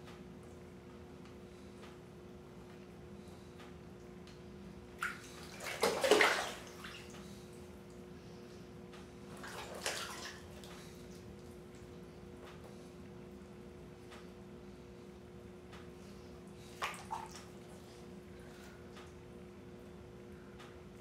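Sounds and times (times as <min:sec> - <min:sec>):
bathwater sloshing and splashing: 0:04.9 - 0:08.1, 0:09.2 - 0:12.0, 0:16.1 - 0:19.1.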